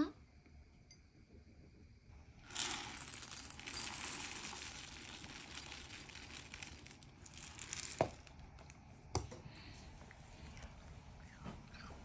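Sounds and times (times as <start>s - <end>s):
cat crunching dry food: 4.3s - 8.8s.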